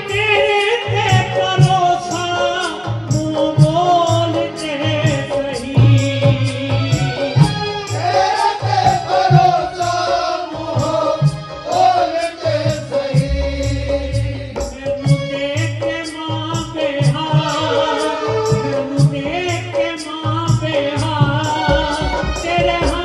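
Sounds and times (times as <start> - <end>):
drum beat: 0.0 - 23.0
held chords: 1.6 - 15.8
person singing: 8.0 - 23.0.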